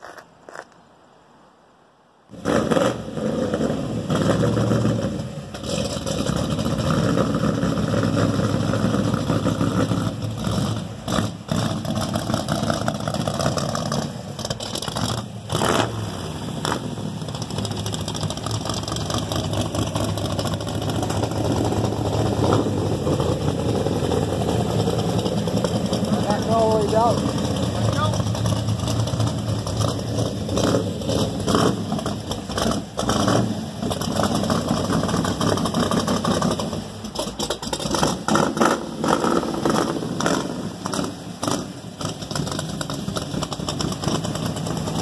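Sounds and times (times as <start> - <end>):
pickup truck engine through loud exhaust: 2.3 - 45.0.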